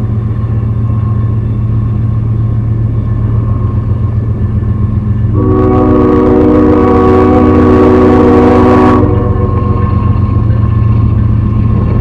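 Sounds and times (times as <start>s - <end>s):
diesel locomotive rumble: 0.0s - 12.0s
train horn blasts: 5.3s - 10.2s.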